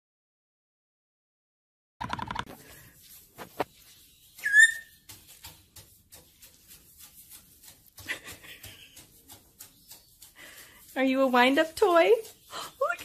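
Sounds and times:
parrot scratchy call: 4.1 - 5.1
parrot whistle: 4.4 - 4.9.

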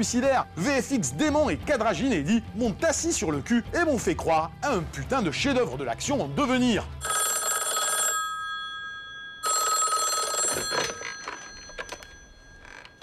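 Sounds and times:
telephone bell ringing: 7.0 - 13.0.

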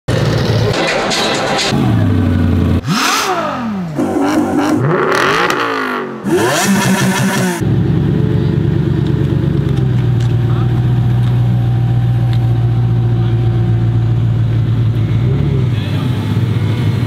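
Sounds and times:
car engine revving: 0.1 - 17.0
car engine idling: 1.7 - 3.1, 6.2 - 17.0.

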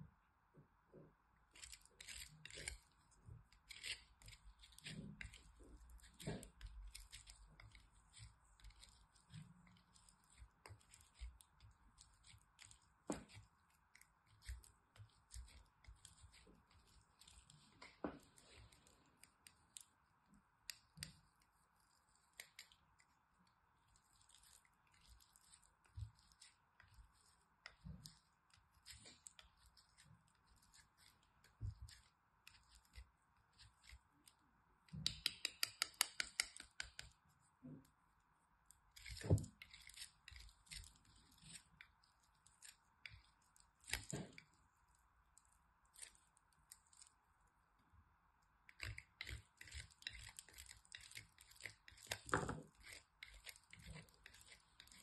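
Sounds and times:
soap scraping on grater: 3.6 - 17.9, 48.8 - 55.0.

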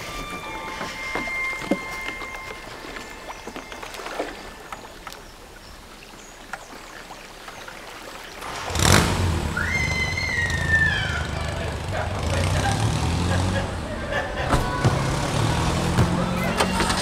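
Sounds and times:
street traffic: 8.4 - 17.0.

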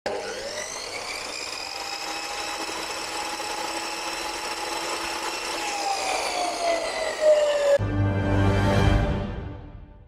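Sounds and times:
chop saw motor whining: 0.1 - 7.8.

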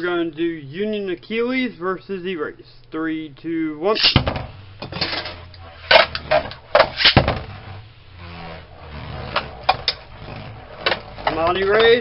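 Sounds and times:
spinning tops whirring: 3.9 - 12.0.

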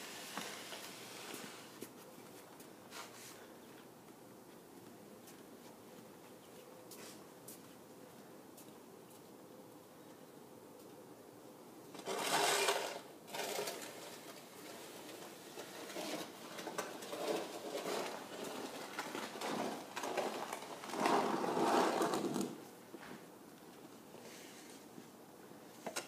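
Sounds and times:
shovel scraping snow on pavement: 0.0 - 1.8, 12.0 - 22.6.

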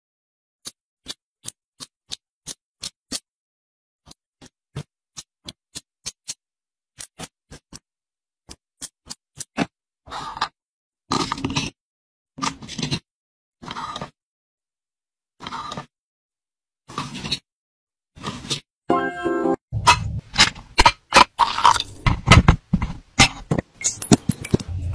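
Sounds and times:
plastic scraping rubs: 19.9 - 24.8.

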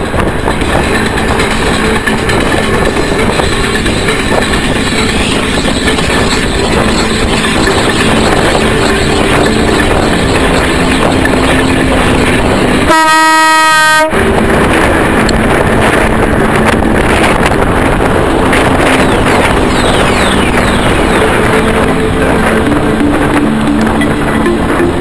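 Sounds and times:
bicycle road rattle: 0.0 - 25.0
wind noise: 0.0 - 25.0
vehicle horn blast: 12.9 - 14.2.

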